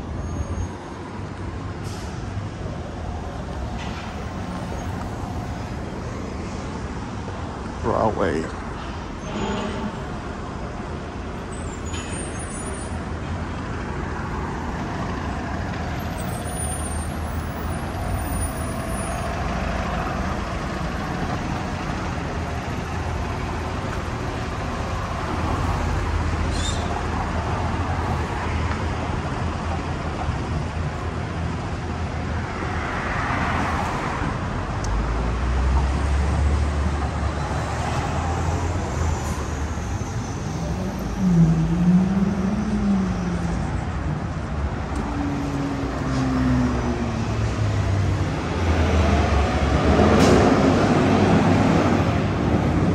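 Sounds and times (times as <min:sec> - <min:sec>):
traffic driving past: 0:00.0 - 0:52.9
brief high squeak: 0:09.2 - 0:10.2, 0:11.5 - 0:13.0, 0:26.5 - 0:27.0.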